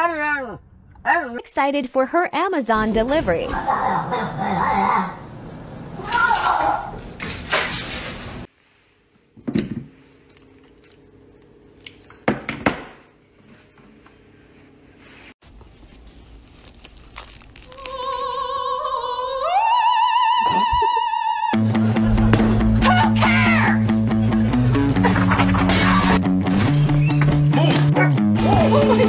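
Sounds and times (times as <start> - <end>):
person singing long wavering notes: 17.7 - 22.0
background music with bass: 21.6 - 29.0.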